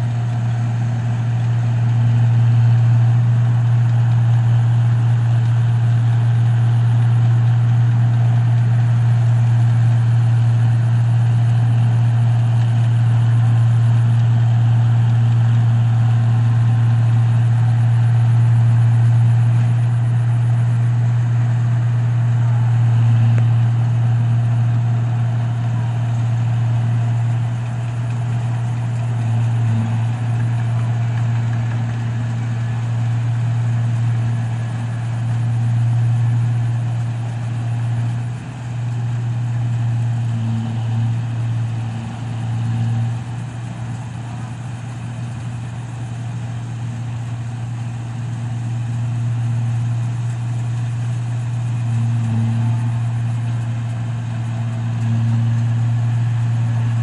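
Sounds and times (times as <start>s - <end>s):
combine harvester engine hum: 0.0s - 57.0s
machinery noise: 13.2s - 57.0s.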